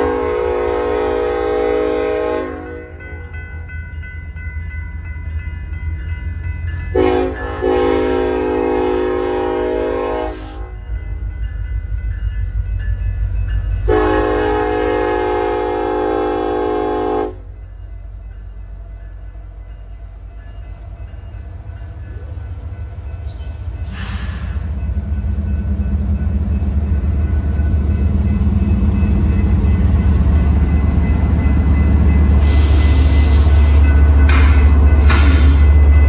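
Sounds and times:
locomotive horn: 0.0s - 3.1s, 6.9s - 10.8s, 13.9s - 17.5s.

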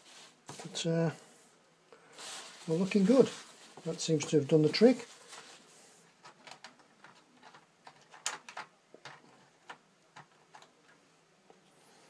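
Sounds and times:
hands clicking and tapping plastic: 6.2s - 11.0s.

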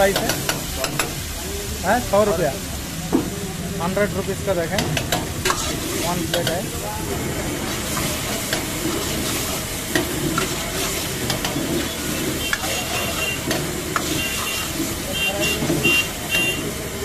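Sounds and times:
gravy sizzling in a wok: 0.0s - 17.0s
steel ladle scraping a wok: 4.8s - 16.7s.

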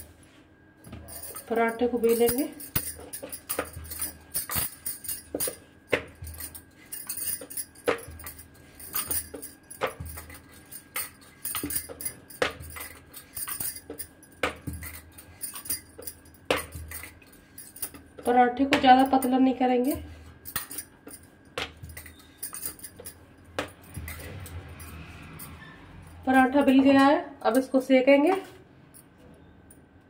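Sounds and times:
bangles clinking: 0.9s - 29.8s.

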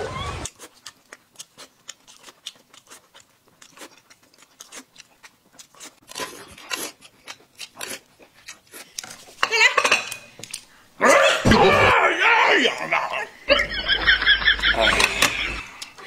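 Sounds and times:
wet chewing clicks: 0.4s - 9.3s.

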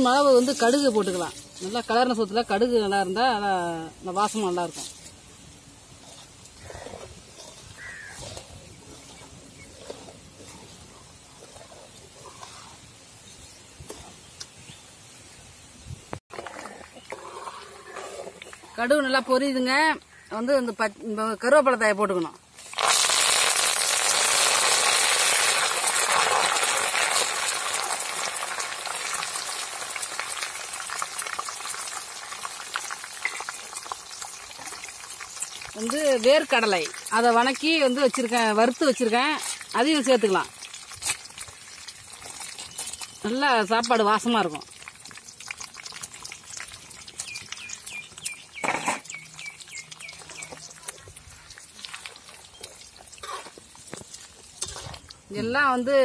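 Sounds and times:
leaves sizzling in hot oil: 0.0s - 11.3s, 21.7s - 56.0s
metal spatula stirring: 5.9s - 12.9s, 33.2s - 47.9s, 48.8s - 55.8s
bird chirping: 47.2s - 51.5s.

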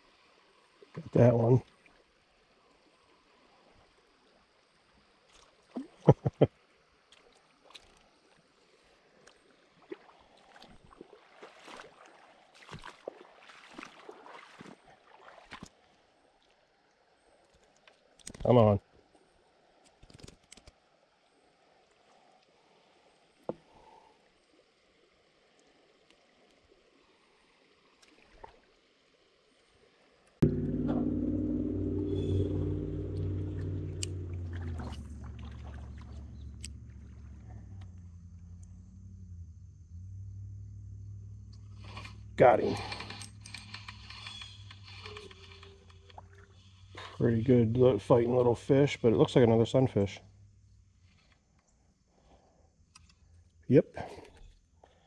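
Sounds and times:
faint flowing creek water: 0.0s - 30.7s, 33.3s - 55.0s
flowing water hiss: 21.3s - 30.3s
fish splashing: 34.2s - 37.4s.

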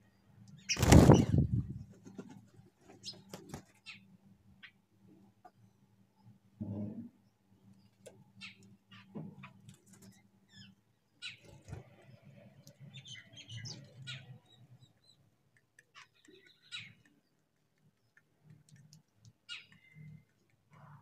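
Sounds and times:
low background hum: 0.0s - 21.0s
faint bird chirps: 5.5s - 21.0s.

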